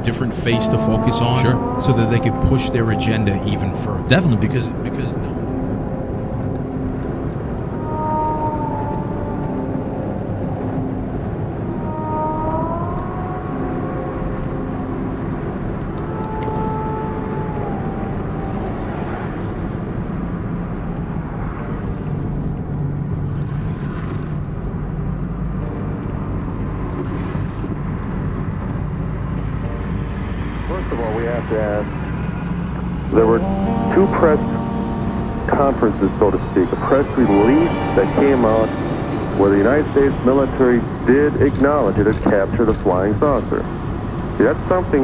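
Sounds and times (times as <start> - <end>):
car engine and road rumble: 0.0 - 33.8
whistle-like sliding tones: 31.0 - 45.0.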